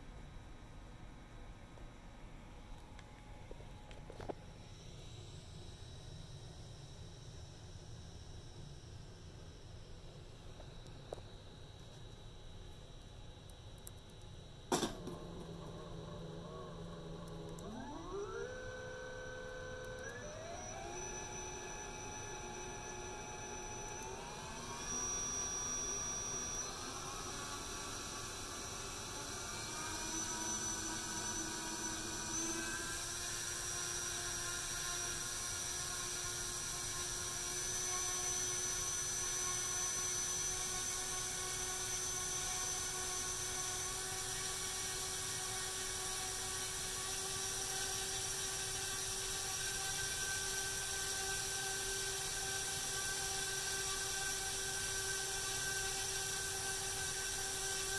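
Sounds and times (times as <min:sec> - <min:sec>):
drone motor whining: 0:14.7 - 0:57.9.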